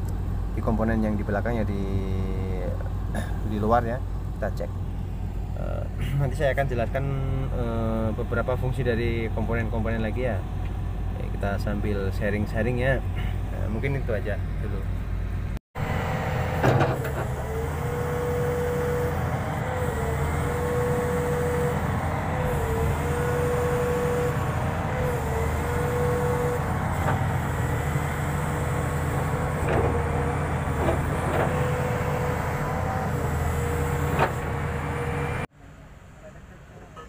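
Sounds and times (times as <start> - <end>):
diesel engine running: 0.0 - 35.5
hydraulic whine: 14.4 - 35.5.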